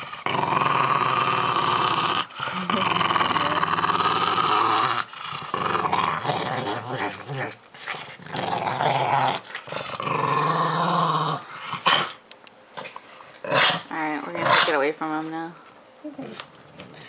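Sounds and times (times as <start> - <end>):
dog growling: 0.0 - 12.2.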